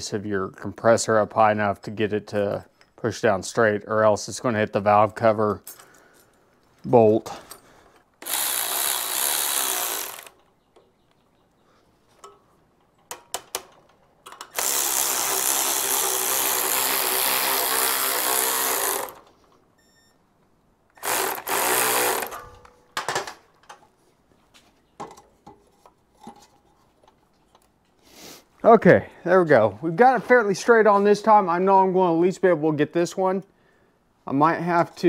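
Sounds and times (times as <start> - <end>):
cordless electric ratchet running: 8.2 - 10.4, 14.5 - 19.3, 21.0 - 22.4
light metal clicks and taps: 12.2 - 14.5.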